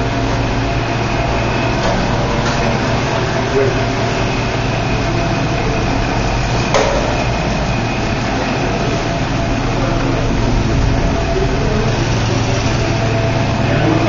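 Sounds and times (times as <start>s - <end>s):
machine-like room hum and hiss: 0.0s - 14.0s
sharp knock: 6.7s - 7.4s.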